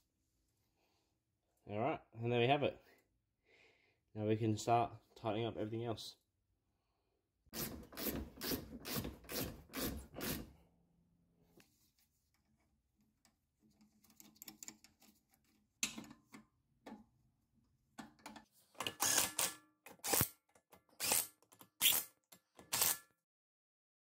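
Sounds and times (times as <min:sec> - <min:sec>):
ratchet wrench clicking: 0:19.0 - 0:20.3, 0:21.0 - 0:22.1, 0:22.7 - 0:23.0.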